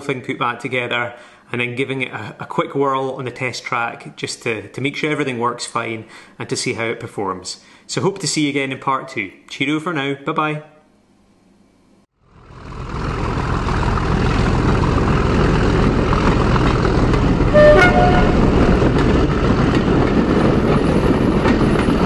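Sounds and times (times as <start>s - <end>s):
train running: 12.9s - 22.0s
two-tone train horn toot: 17.5s - 19.0s.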